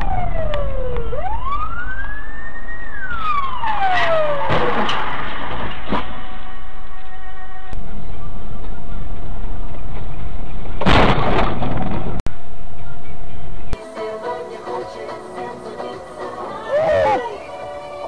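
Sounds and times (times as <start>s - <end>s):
police siren wailing: 0.0s - 9.2s
road rumble: 0.0s - 14.0s
sharp crash bangs: 3.7s - 6.5s, 10.8s - 12.2s.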